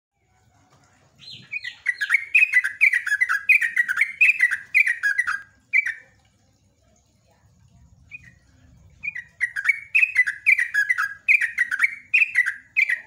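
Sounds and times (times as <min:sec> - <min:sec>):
bird singing bubbly whistles: 0:01.2 - 0:06.2, 0:08.0 - 0:13.0.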